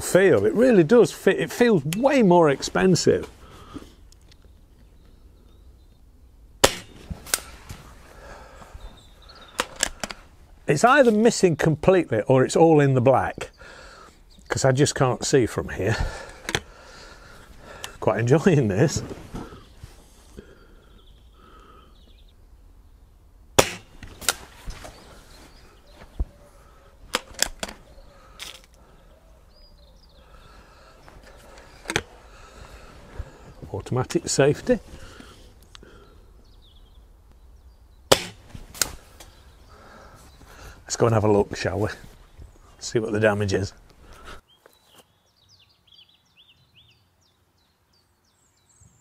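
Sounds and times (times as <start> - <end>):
air rifle shot crack: 6.6 - 7.7, 23.6 - 24.6, 38.1 - 39.3
quieter crack: 6.6 - 8.7, 23.5 - 25.2, 27.1 - 28.8, 38.0 - 40.7
rifle handling clicks and knocks: 9.5 - 10.2, 16.1 - 16.7, 27.1 - 28.8, 31.1 - 32.2.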